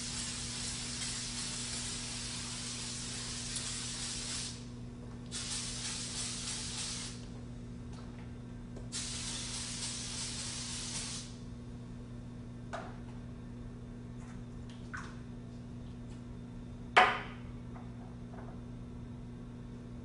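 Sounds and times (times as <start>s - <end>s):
aerosol spray hissing: 0.0s - 4.6s, 5.3s - 7.2s, 8.9s - 11.4s.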